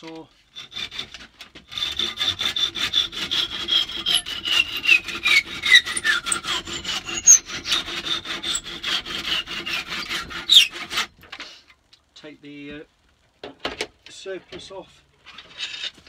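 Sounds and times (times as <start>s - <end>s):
handsaw cutting wood: 0.5s - 11.2s.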